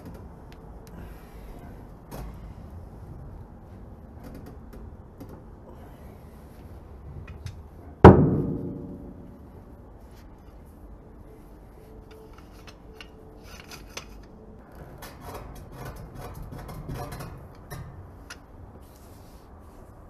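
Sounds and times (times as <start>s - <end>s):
pliers clicking and rubbing: 12.0s - 14.4s.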